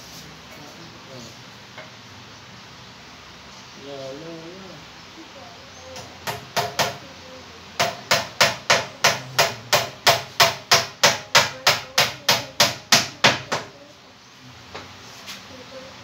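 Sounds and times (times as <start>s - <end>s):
hammer striking nails: 6.0s - 7.0s, 7.8s - 13.7s.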